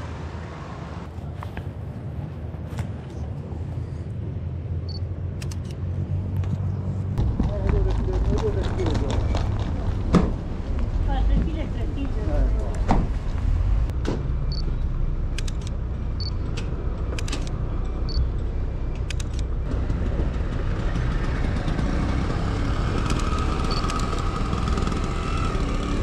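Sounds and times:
vehicle engine running: 4.9s - 26.0s
sharp clicks: 5.4s - 5.8s, 15.3s - 15.8s, 18.9s - 19.5s.

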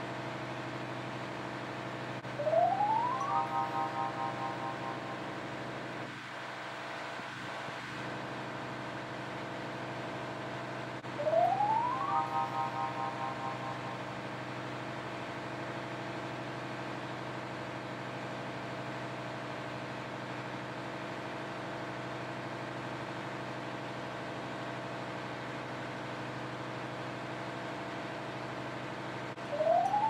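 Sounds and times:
engine-room machinery hum: 0.0s - 30.0s
rising electronic sweep: 2.4s - 5.9s, 11.2s - 14.4s.

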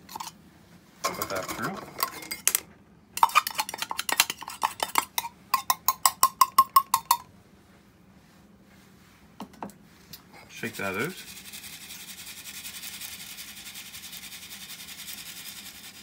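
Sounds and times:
grinding beads clattering into sieve: 11.2s - 16.0s.

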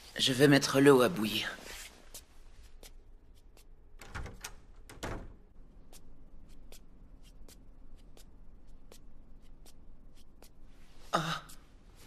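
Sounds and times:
door bumping shut: 4.0s - 5.4s.

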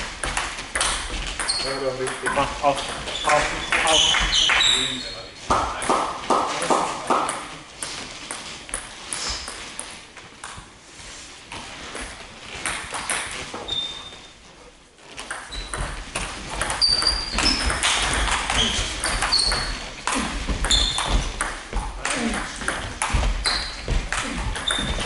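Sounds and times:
table tennis balls clicking: 0.2s - 4.7s, 15.2s - 25.0s.

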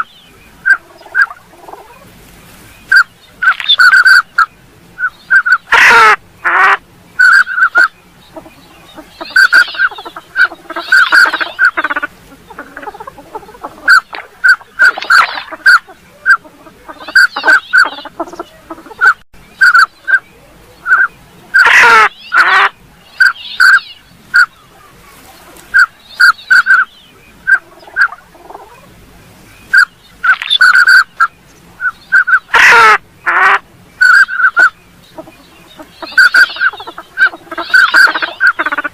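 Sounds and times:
coarse duck calls: 2.9s - 20.2s, 20.8s - 24.5s, 29.7s - 38.9s
whistled duck calls: 2.9s - 20.2s, 20.8s - 24.6s, 25.7s - 28.2s, 29.7s - 38.9s.

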